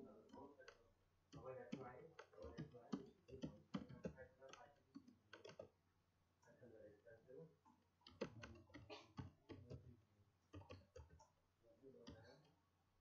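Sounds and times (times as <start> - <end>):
keyboard typing: 0.3 - 5.7, 8.0 - 9.8, 10.5 - 11.3.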